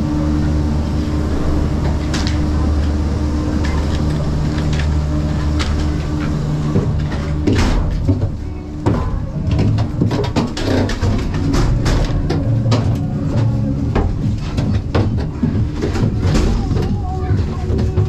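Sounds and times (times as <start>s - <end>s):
low mechanical hum: 0.0s - 18.0s
clattering and knocks: 5.5s - 18.0s.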